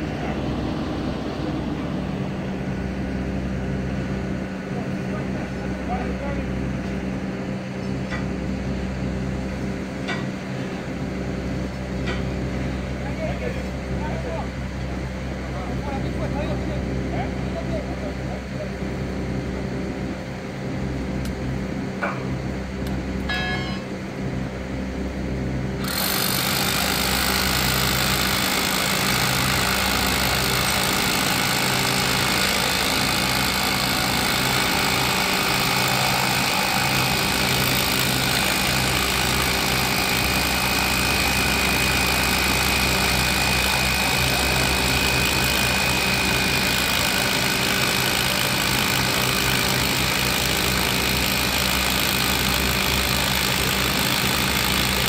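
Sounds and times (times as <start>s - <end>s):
power tool running loudly: 25.7s - 55.0s.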